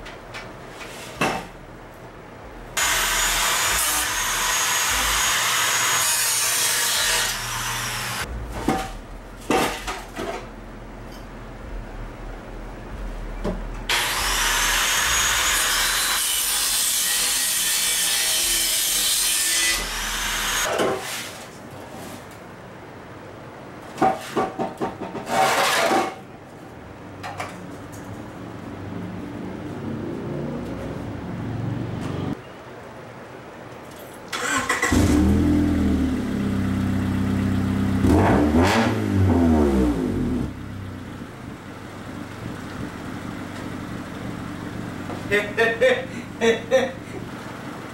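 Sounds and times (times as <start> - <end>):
angle grinder cutting metal pipe: 2.8 - 8.3, 13.9 - 20.7
metal clunk: 8.3 - 11.3
car engine starting and revving: 34.4 - 44.6.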